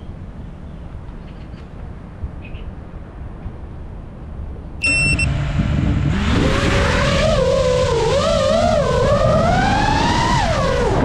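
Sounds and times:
low steady rumble: 3.7 - 11.0
short high beep: 4.8 - 5.3
quadcopter motors whining: 6.3 - 11.0.

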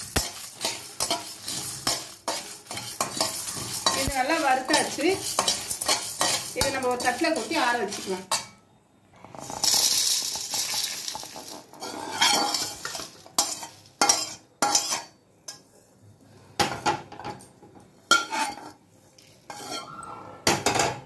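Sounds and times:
metal spatula scraping pan: 0.0 - 8.6, 10.8 - 15.6, 18.1 - 18.8, 19.4 - 20.8
spices rattling onto steel plate: 0.0 - 8.6, 9.4 - 15.2.

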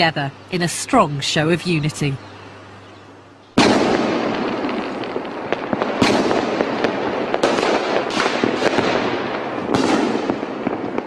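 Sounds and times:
firecrackers crackling: 3.6 - 11.0
firework bangs: 3.6 - 11.0.

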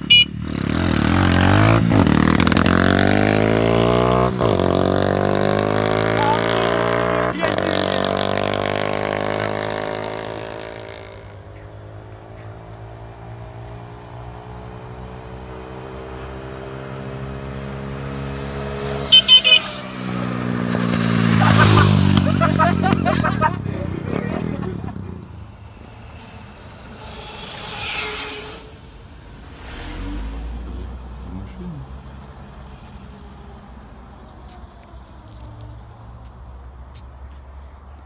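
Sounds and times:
horn beeps: 0.0 - 0.4, 18.9 - 20.0
motorbike engine revving: 0.0 - 12.1, 15.5 - 31.8.

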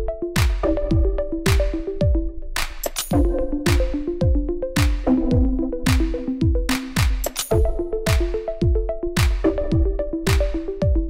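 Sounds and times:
electronic music with drum-machine beat: 0.0 - 11.0
plucked synth notes: 3.1 - 11.0.

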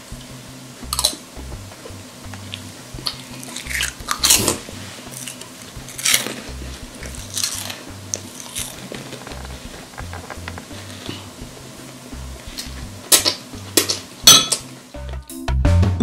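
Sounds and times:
child chewing: 0.8 - 1.2, 1.8 - 11.6, 12.3 - 14.1.

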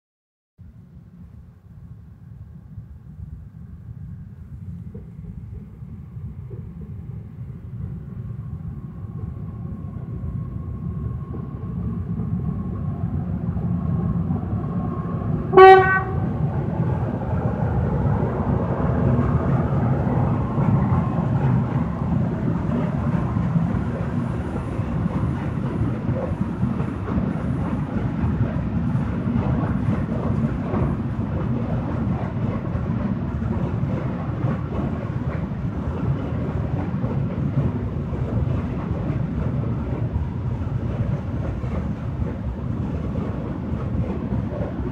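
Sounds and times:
train wheels rumbling: 2.2 - 44.9
train horn blast: 15.5 - 16.4.

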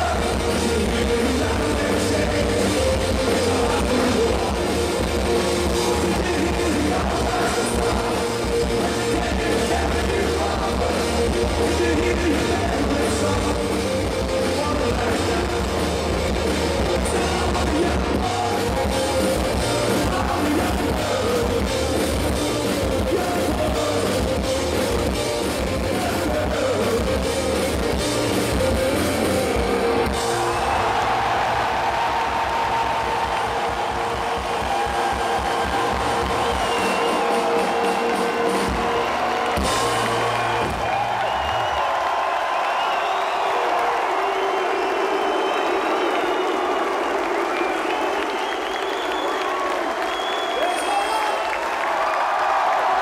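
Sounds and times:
person singing: 0.0 - 30.0
electric guitars: 0.0 - 46.4
drums: 0.0 - 53.0.

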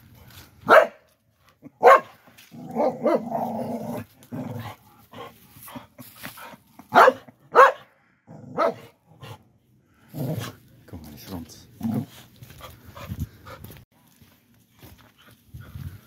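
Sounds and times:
small dog barking: 0.6 - 1.0, 1.7 - 2.2, 2.8 - 3.4, 6.9 - 7.9, 8.5 - 8.9.

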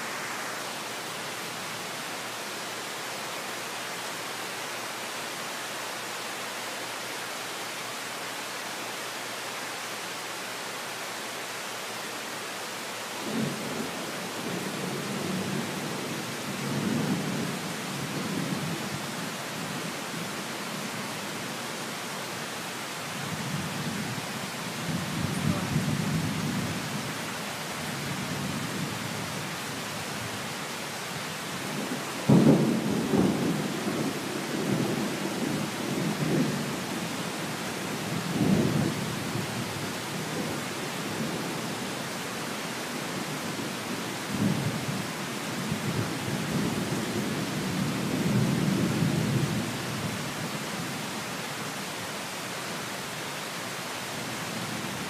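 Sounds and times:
steady rain: 0.0 - 55.0
thunder claps and rumbling: 31.7 - 36.6.

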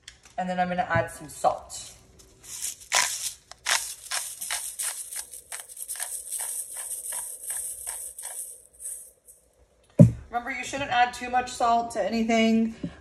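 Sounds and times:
salt grinder clicking: 2.8 - 9.0.

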